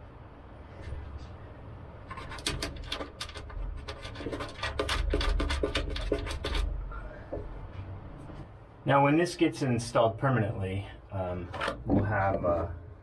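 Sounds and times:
bolt rubbing and scraping on wood: 2.0 - 6.8.

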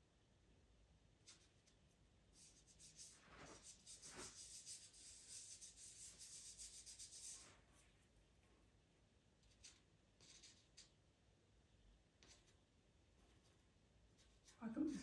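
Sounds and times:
pastel scratching on paper: 2.4 - 7.9, 9.4 - 10.9, 13.2 - 15.0.

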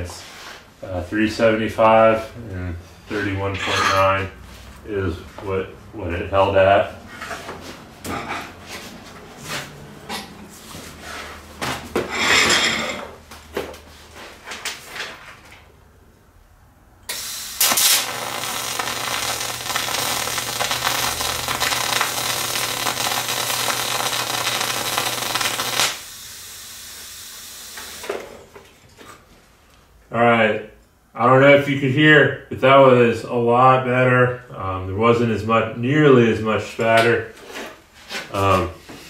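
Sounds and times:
welding arc hissing: 17.1 - 28.5.

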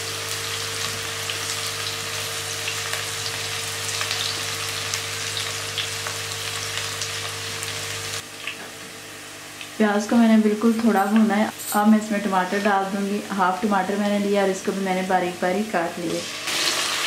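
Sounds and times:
onions sizzling in hot oil: 0.0 - 8.5, 15.8 - 17.0.

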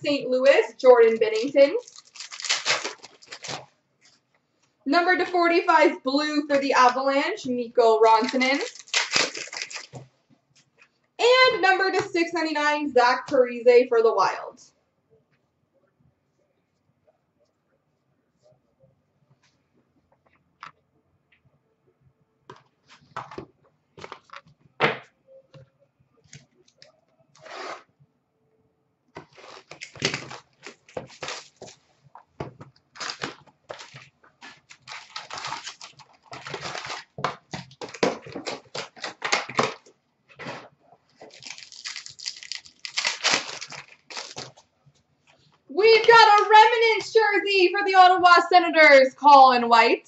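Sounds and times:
cards shuffling: 1.0 - 3.7, 8.2 - 10.1, 22.5 - 24.6, 29.2 - 31.8
wrappers tearing and crinkling: 1.3 - 3.7, 8.2 - 10.0, 29.2 - 31.8, 32.9 - 44.7.

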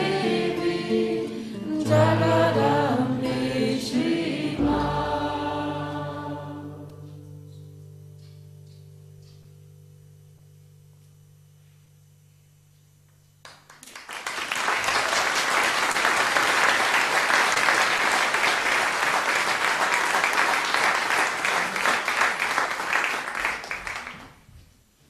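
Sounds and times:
guitar chord: 0.0 - 11.8
audience applause: 13.5 - 24.4.

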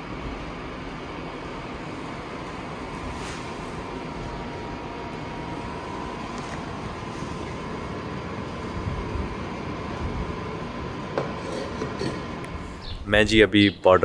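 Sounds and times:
low hum and hiss: 0.0 - 14.0.

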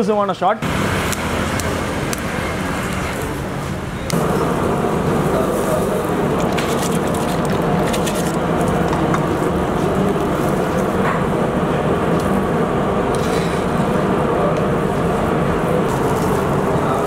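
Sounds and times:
water boiling hard in pot: 4.1 - 17.0.

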